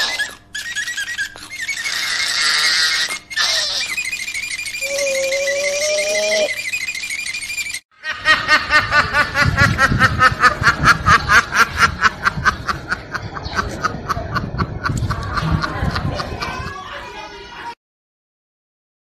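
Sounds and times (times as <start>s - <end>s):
fast high chirping: 0.0s - 7.8s.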